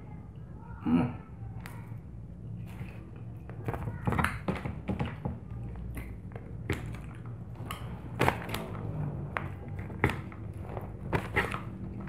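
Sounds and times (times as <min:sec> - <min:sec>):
chewing: 0:05.9 - 0:10.3.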